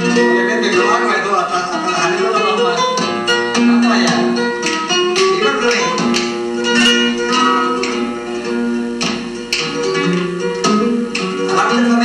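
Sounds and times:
flamenco acoustic guitar: 0.0s - 12.0s.

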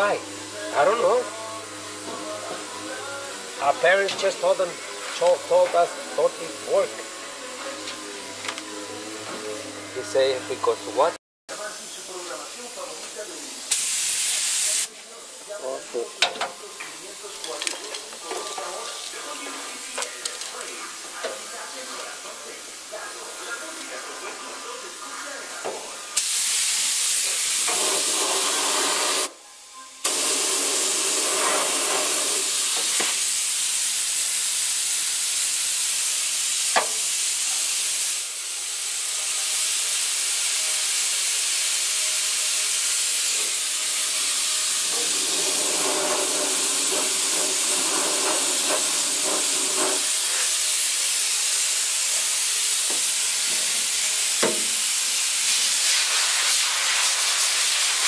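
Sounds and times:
spray gun hissing: 11.6s - 15.7s, 18.1s - 29.3s, 30.0s - 58.0s.

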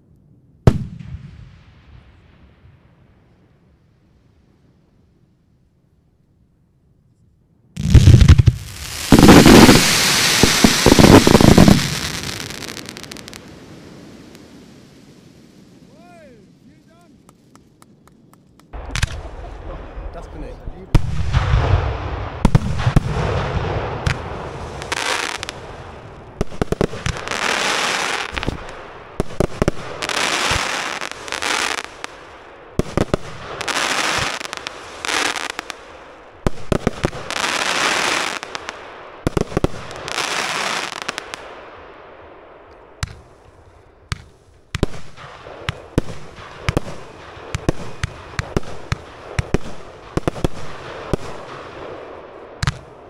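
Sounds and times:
crackling hiss: 7.1s - 21.4s, 22.3s - 53.0s
fireworks reports: 7.8s - 17.9s, 18.7s - 38.8s, 43.0s - 53.0s
scattered pops and cracks: 17.2s - 19.2s.

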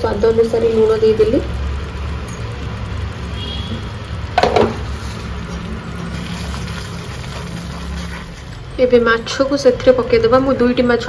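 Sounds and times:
paste sizzling in oil: 4.8s - 8.8s.

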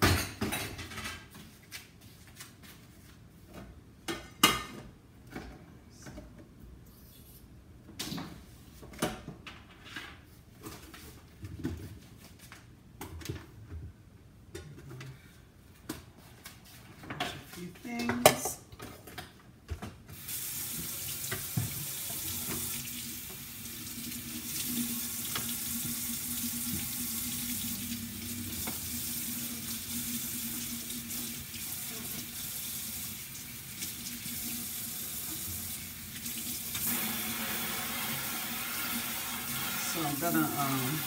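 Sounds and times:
faucet running into a sink: 20.2s - 41.0s.

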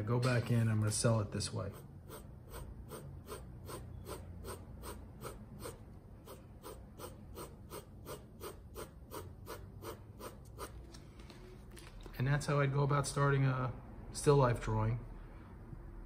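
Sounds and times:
pencil shading on paper: 1.6s - 10.8s.

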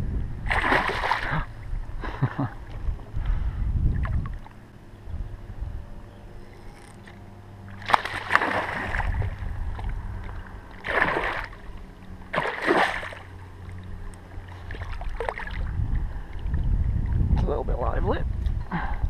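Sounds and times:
low steady rumble: 0.0s - 19.0s
water splashing: 0.4s - 1.7s, 7.0s - 17.3s.

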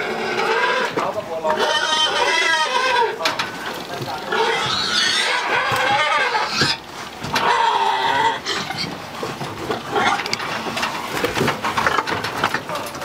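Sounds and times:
pigs squealing: 0.0s - 12.2s.

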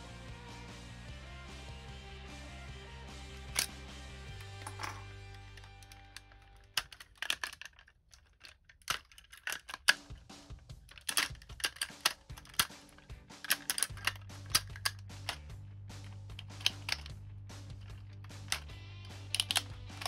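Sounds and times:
plastic toy parts clicking: 3.5s - 3.7s, 4.4s - 10.2s, 10.8s - 20.0s.

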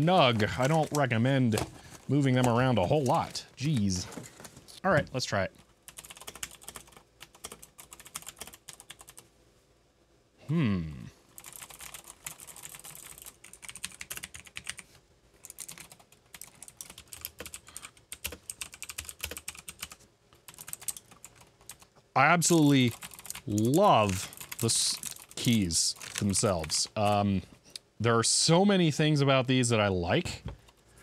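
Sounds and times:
mechanical keyboard typing: 5.9s - 9.2s, 11.4s - 14.8s, 15.4s - 21.8s, 22.8s - 26.8s
voice humming falling in pitch: 10.4s - 11.2s.

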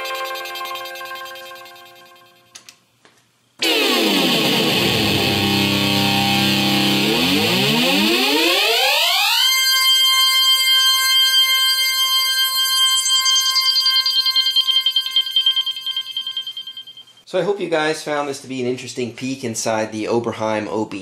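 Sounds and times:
synthesizer note pitch sweeping: 3.6s - 17.2s.

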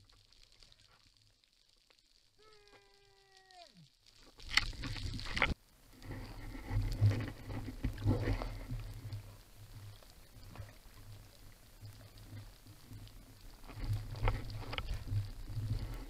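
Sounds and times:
underwater rushing water and bubbles: 0.0s - 2.4s, 3.0s - 16.0s.

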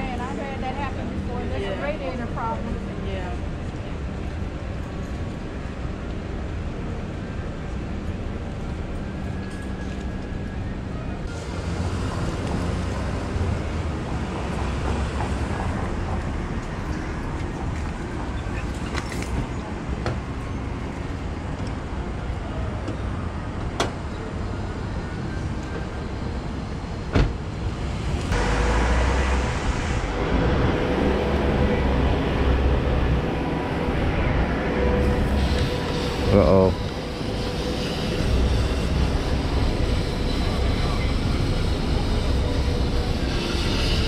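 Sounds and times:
street traffic: 0.0s - 44.0s
low rushing: 27.4s - 37.6s
loud hiss of steam: 35.1s - 44.0s.

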